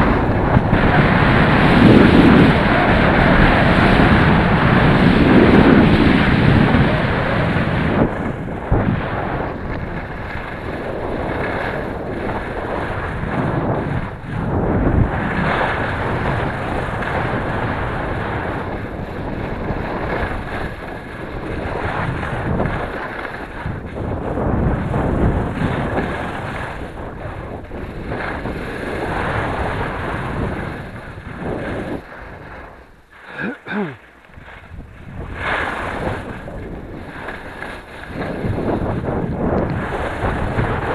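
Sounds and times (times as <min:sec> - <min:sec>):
wind rushing over microphone: 0:00.0 - 0:40.9.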